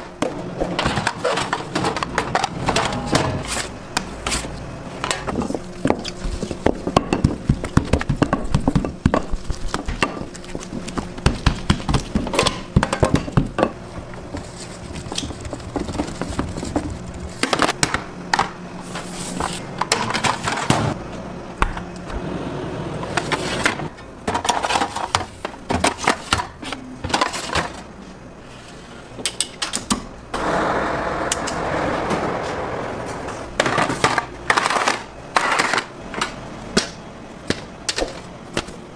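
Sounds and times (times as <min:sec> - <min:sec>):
dough worked on steel table: 0:00.0 - 0:38.9
steady rushing noise: 0:30.4 - 0:33.6.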